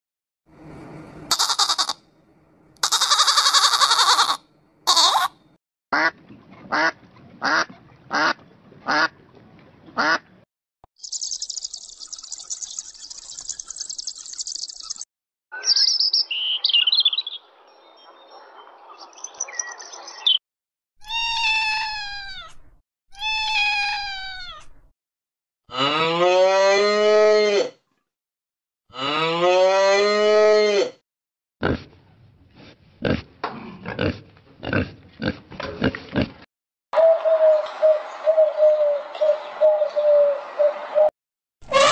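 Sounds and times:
quack-like bird calls: 10.0s - 10.3s
cow mooing: 25.7s - 27.8s, 28.9s - 31.0s.

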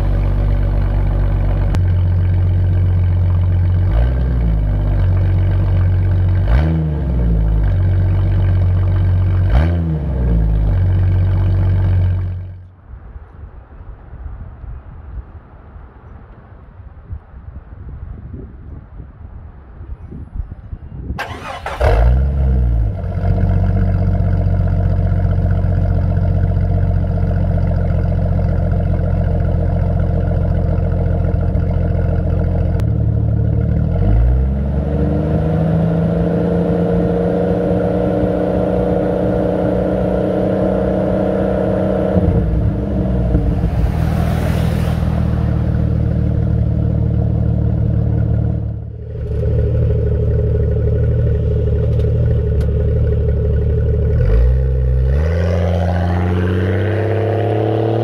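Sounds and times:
car engine starting and idling: 0.0s - 12.6s, 21.2s - 55.3s
engine revving: 3.7s - 12.4s, 21.2s - 25.4s, 33.5s - 53.2s, 54.0s - 58.0s.

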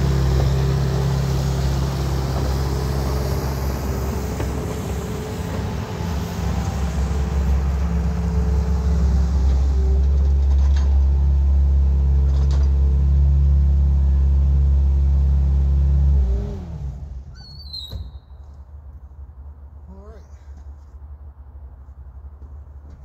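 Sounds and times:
diesel engine running: 0.0s - 17.4s.

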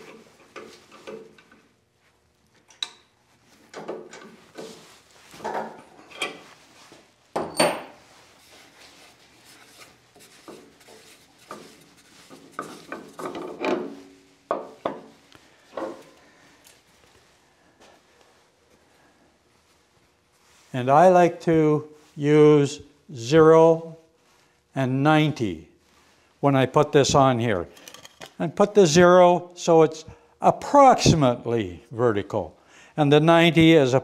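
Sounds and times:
knocks and taps of handled parts: 10.4s - 16.1s.

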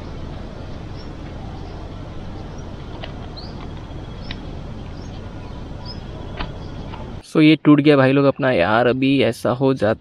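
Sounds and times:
wind rumble on microphone: 0.0s - 7.2s
bird chirps: 0.8s - 7.2s.

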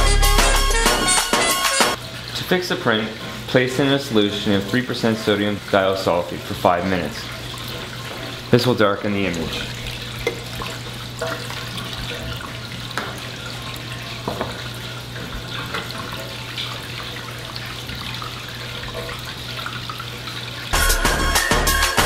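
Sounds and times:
music: 0.0s - 2.0s, 20.8s - 22.0s
water running in sink: 0.0s - 22.0s.

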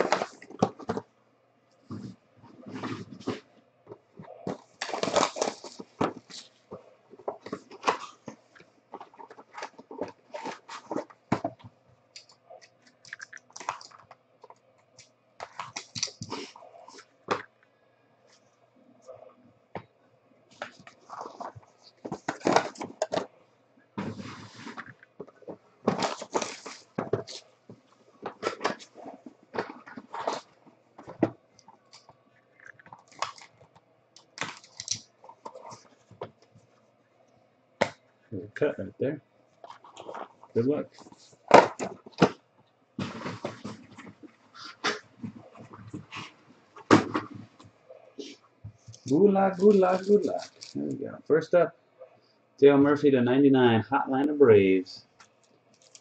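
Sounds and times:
cardboard and plastic rustling: 0.0s - 1.1s, 1.8s - 11.8s, 20.5s - 23.3s, 24.0s - 32.2s, 32.9s - 36.7s, 39.6s - 42.4s, 43.0s - 51.0s, 55.8s - 56.0s.

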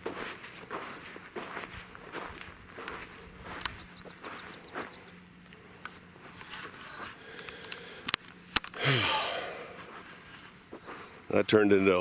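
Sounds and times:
footsteps on dirt and gravel: 0.0s - 7.8s, 9.6s - 11.3s
faint rapid high chirping: 3.7s - 5.2s
camera handling clicks and scrapes: 5.8s - 8.8s.

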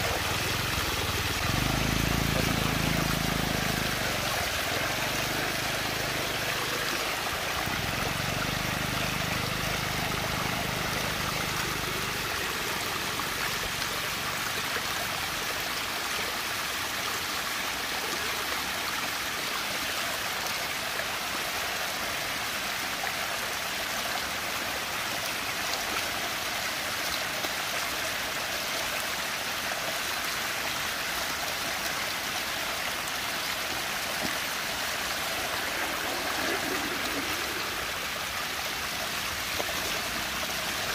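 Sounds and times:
water swirling in vortex: 33.9s - 40.9s.

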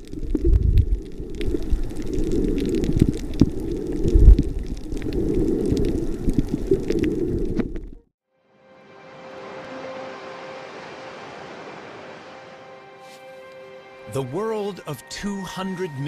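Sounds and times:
crackles: 0.0s - 8.1s
underwater rumbling and sloshing: 0.0s - 8.1s.

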